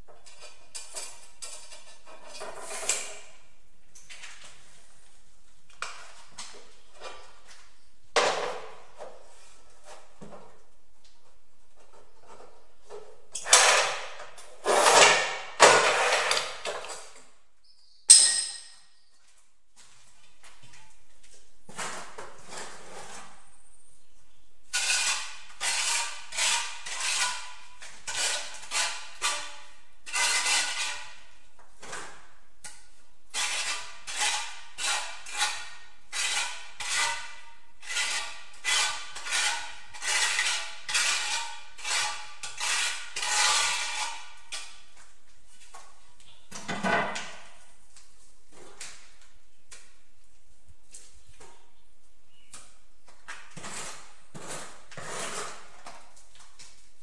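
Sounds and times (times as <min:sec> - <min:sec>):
trowel scraping adhesive on tile: 0:12.0 - 0:17.2, 0:21.7 - 0:23.6, 0:24.7 - 0:32.3, 0:33.3 - 0:44.8, 0:53.3 - 0:56.2.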